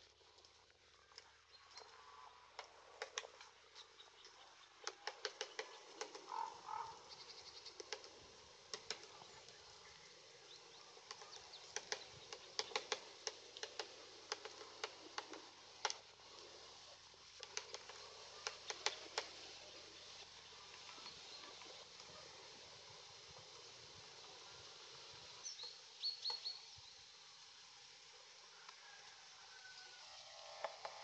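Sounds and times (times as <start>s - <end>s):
woodpecker tapping bark: 4.8s - 8.1s, 8.7s - 9.3s, 11.0s - 16.0s, 17.4s - 19.4s.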